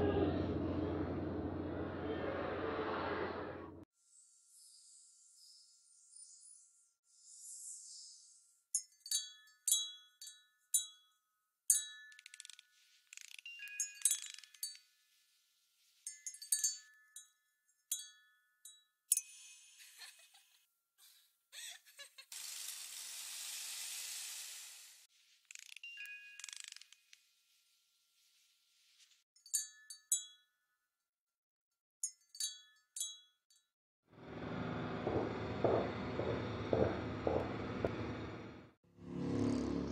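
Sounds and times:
chimes tinkling: 13.4s - 14.8s
steady rushing hiss: 22.3s - 25.3s.

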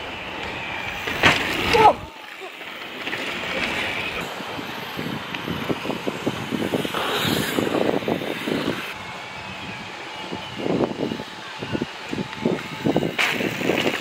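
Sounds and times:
bike tyres rolling over dirt: 0.0s - 14.0s
bike clicks and knocks: 0.2s - 1.9s.

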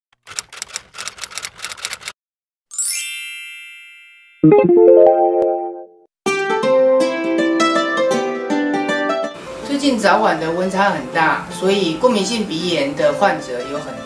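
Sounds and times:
shimmering chime sweep: 2.7s - 4.4s
keyboard chord: 4.4s - 9.4s.

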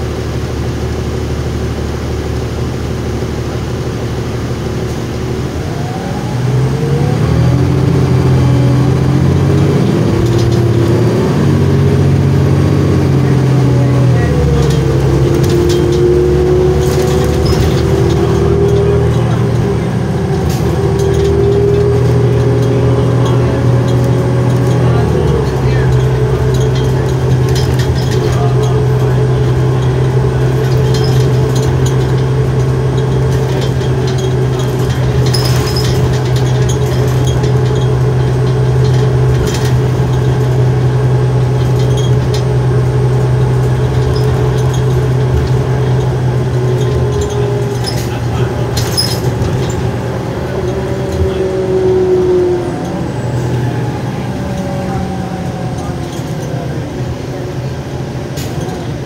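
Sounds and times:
bus engine droning: 0.0s - 59.0s
sharp rattles: 7.9s - 52.4s.

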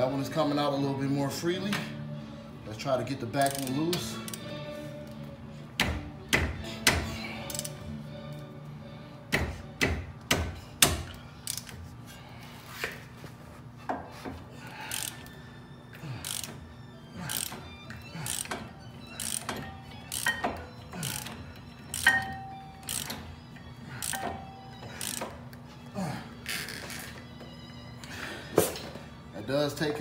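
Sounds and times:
ratchet wrench clicking: 3.4s - 4.5s, 7.4s - 7.8s, 11.0s - 11.8s, 14.9s - 15.2s, 16.2s - 16.6s, 17.3s - 17.6s, 18.2s - 23.2s, 24.0s - 24.4s, 25.0s - 25.3s.

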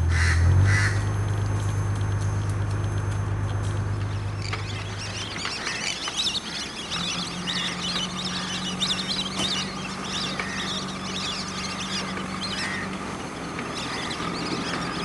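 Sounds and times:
steady low hum: 0.0s - 15.0s
chorus of birds chirping: 3.9s - 15.0s.

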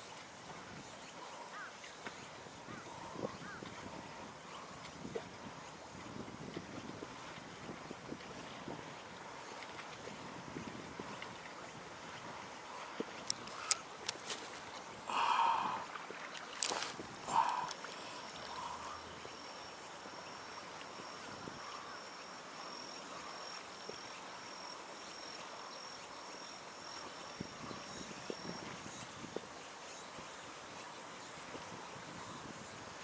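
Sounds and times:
water noise: 0.0s - 33.0s
wind noise: 2.5s - 16.0s, 27.4s - 29.5s, 31.3s - 33.0s.

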